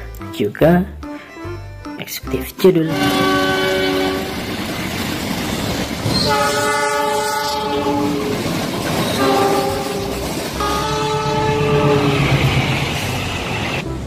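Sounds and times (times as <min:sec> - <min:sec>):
locomotive horn blasts: 0:02.8 - 0:04.6, 0:06.1 - 0:12.4
train wheels clattering on rails: 0:04.2 - 0:13.8.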